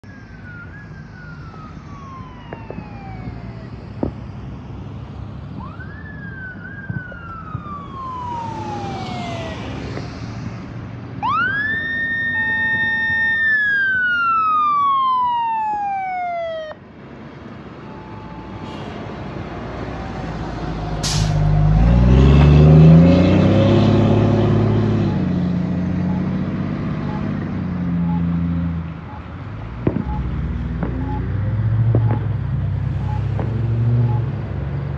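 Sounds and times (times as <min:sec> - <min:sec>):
fire engine siren: 0:00.0 - 0:34.9
truck engine passing: 0:00.5 - 0:34.9
brief air hiss: 0:21.0 - 0:21.5.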